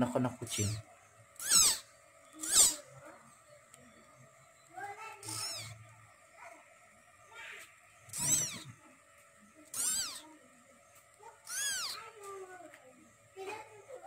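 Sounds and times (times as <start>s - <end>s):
kitten mewing: 1.4s - 2.9s, 5.2s - 5.8s, 8.1s - 8.8s, 9.7s - 10.2s, 11.4s - 12.0s.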